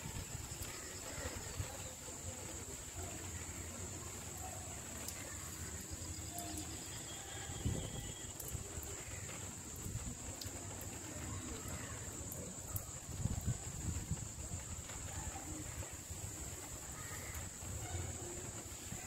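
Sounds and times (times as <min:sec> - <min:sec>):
light rain: 0:00.0 - 0:19.0
wind rumble on microphone: 0:07.5 - 0:08.3, 0:12.9 - 0:15.9.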